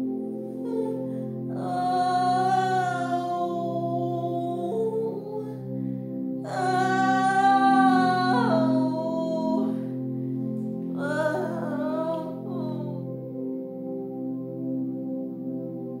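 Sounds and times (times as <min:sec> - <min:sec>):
sustained chords: 0:00.0 - 0:16.0
person singing long notes: 0:00.6 - 0:13.3.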